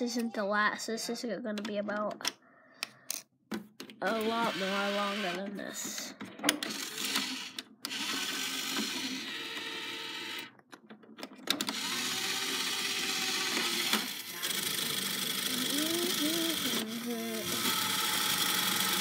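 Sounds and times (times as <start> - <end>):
small electric motors whirring: 4.1 - 5.5, 6.6 - 10.5, 11.6 - 19.0.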